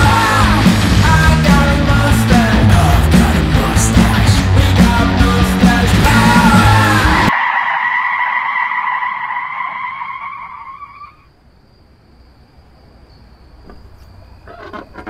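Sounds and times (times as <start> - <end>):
car tyres squealing: 6.1 - 11.3, 13.7 - 15.0.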